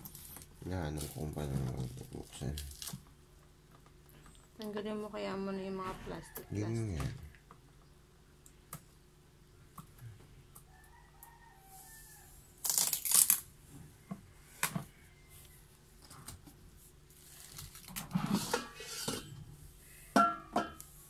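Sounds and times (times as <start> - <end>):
plastic film peeling and crinkling: 0.0 - 3.0, 12.6 - 13.5, 17.1 - 18.2.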